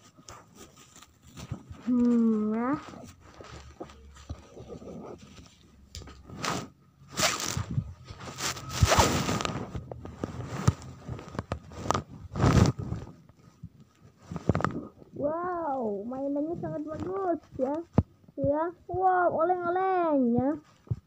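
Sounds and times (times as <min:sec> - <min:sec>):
packaging rustling and crinkling: 0:00.0 - 0:14.8.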